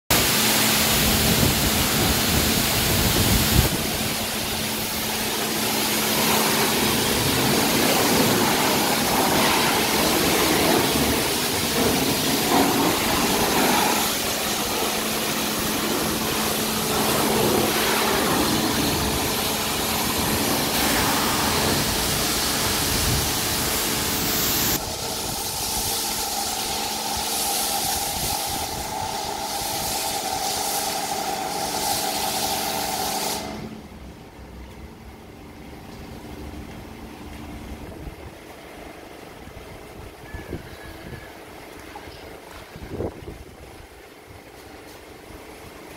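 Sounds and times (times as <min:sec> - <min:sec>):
pressure washer spraying water: 0:00.1 - 0:33.8.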